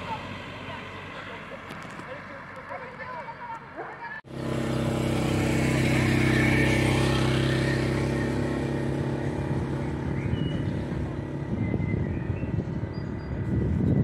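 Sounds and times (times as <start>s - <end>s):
motorcycle engine riding past: 4.3s - 14.0s.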